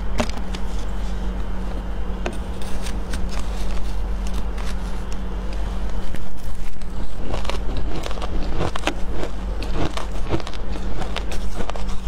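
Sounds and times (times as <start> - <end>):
steady low hum: 0.0 - 12.0
metal spoon scraping shaved ice: 2.4 - 4.9.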